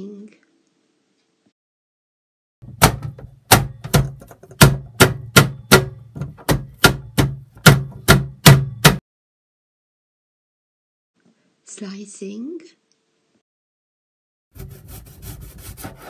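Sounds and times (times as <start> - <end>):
knife chopping on plastic board: 2.6 - 9.0.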